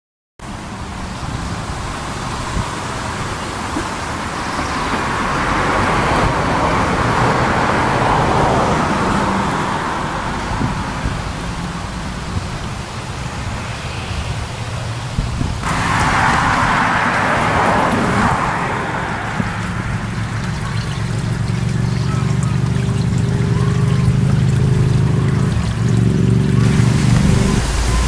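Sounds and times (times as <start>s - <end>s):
low traffic rumble: 0.4s - 28.0s
vehicle passing: 0.8s - 28.0s.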